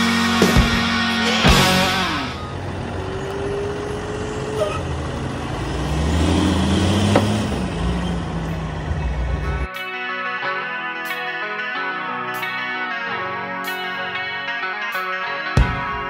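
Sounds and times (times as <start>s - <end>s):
truck engine rumble: 0.0s - 9.7s.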